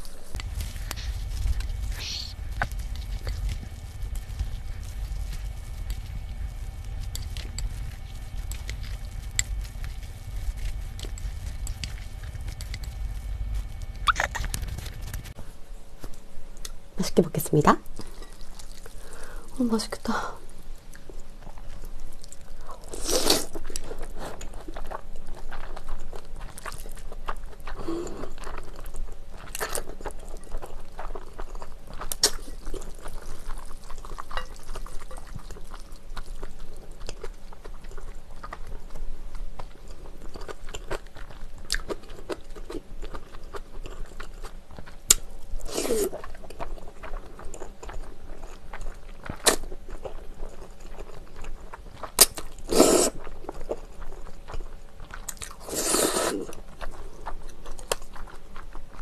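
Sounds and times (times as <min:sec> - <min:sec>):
wet chewing: 0:00.0 - 0:15.4, 0:20.9 - 0:59.0
noodles slurped: 0:52.6 - 0:53.2, 0:55.6 - 0:56.6.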